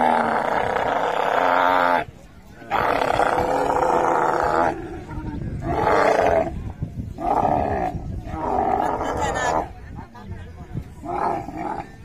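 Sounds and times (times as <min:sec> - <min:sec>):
camel calling loudly: 0:00.0 - 0:02.1, 0:02.7 - 0:06.6, 0:07.2 - 0:09.8.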